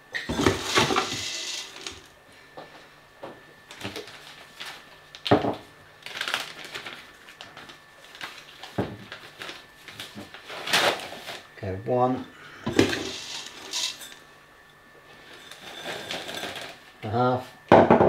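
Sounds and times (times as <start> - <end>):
plastic bag rustling: 0.3 - 2.1, 3.7 - 5.0, 6.0 - 11.5, 12.8 - 14.2, 15.2 - 16.9
seeds poured into plastic jug: 0.6 - 2.0, 12.8 - 14.0.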